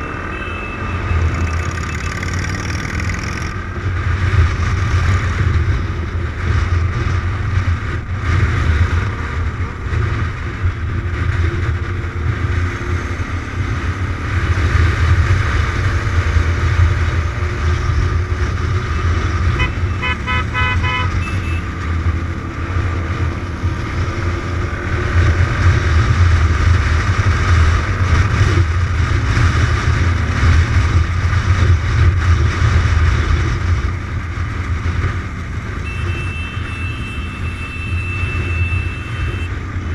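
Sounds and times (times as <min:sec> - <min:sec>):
motorcycle engine running: 0:00.0 - 0:39.9
horn short toots: 0:19.6 - 0:21.7, 0:35.8 - 0:39.6.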